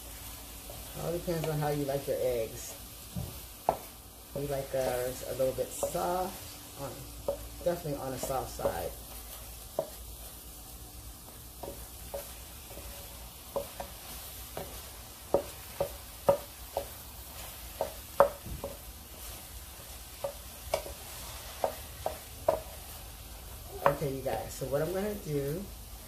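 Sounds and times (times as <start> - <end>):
eggs sizzling: 0.0 - 26.0
spatula scraping a pan: 11.2 - 25.0.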